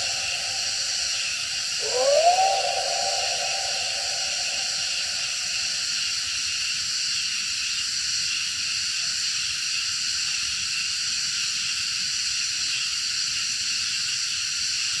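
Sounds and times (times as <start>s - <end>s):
low tone: 0.0s - 5.9s
high-pitched hiss: 0.0s - 6.5s.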